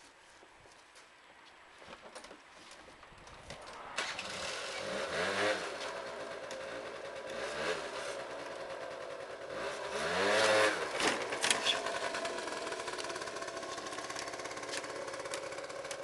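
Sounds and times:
scooter engine revving: 4.0s - 16.0s.

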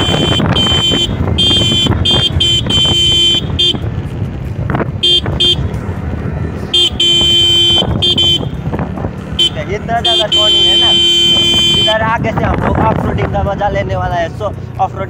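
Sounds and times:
vehicle horn honking: 0.0s - 4.0s, 5.0s - 5.8s, 6.7s - 8.6s, 9.4s - 12.1s
wind rush: 0.0s - 6.8s, 7.8s - 9.4s, 11.8s - 14.0s
motorcycle engine running: 0.0s - 15.0s.

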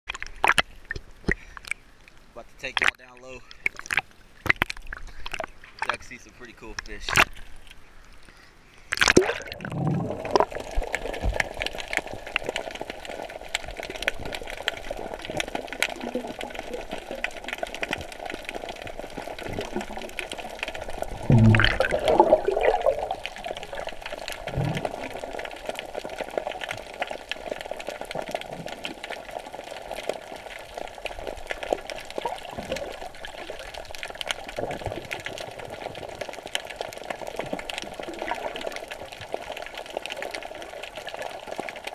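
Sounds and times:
water splash: 8.9s - 11.5s, 19.3s - 25.5s
muffled underwater rushing: 9.0s - 40.8s.

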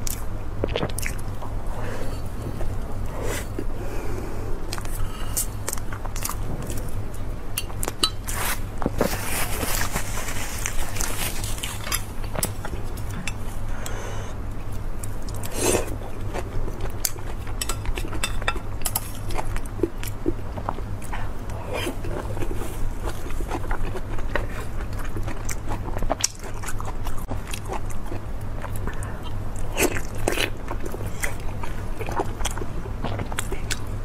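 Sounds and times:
steady low hum: 0.0s - 34.0s
chewing and mouth clicks: 14.7s - 34.0s.

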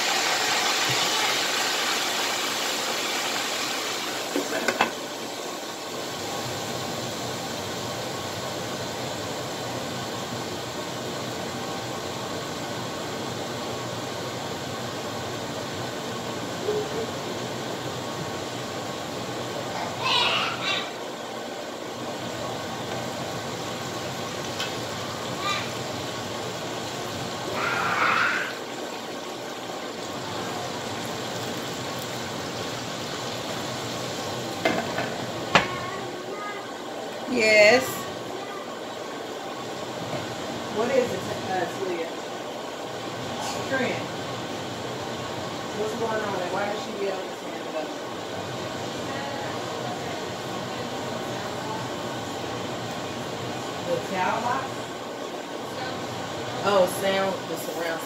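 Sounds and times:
chicken boiling in skillet: 0.0s - 58.0s
water sizzling in a hot pan: 0.0s - 58.0s.

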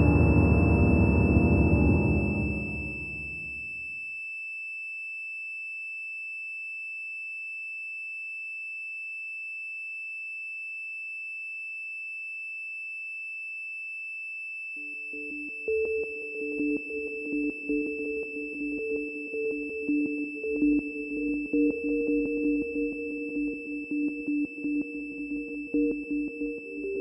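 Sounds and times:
high electronic sine tone: 0.0s - 3.9s, 14.2s - 27.0s.

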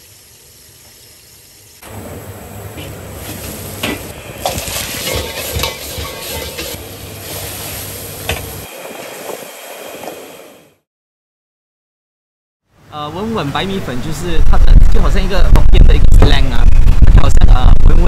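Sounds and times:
wok sizzling: 0.0s - 10.6s
gas burner roar: 0.0s - 10.8s.

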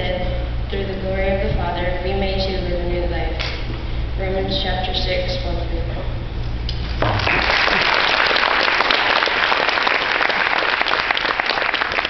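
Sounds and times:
crowd clapping: 7.0s - 12.0s.

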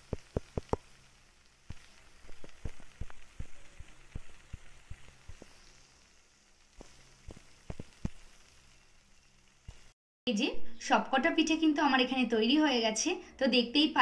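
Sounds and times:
faint oil sizzle: 0.0s - 10.0s
oil popping while deep-frying: 0.0s - 10.0s.

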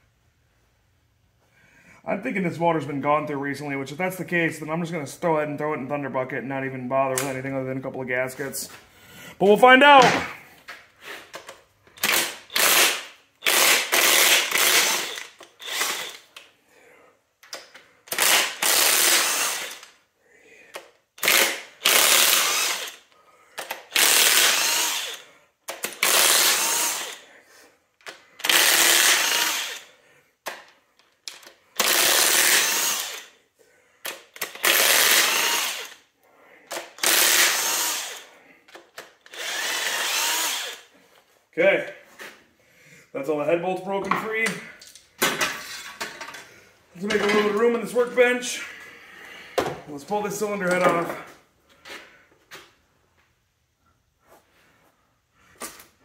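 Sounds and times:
impact wrench hammering bolts: 47.0s - 47.9s.

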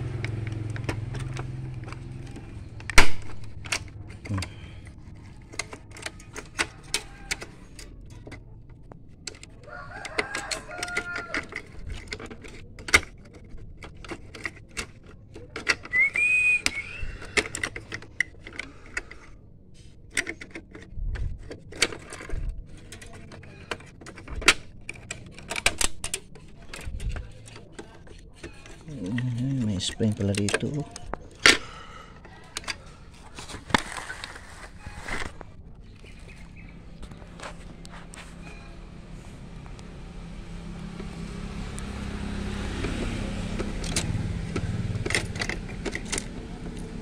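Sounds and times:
bird calling: 15.9s - 17.4s.

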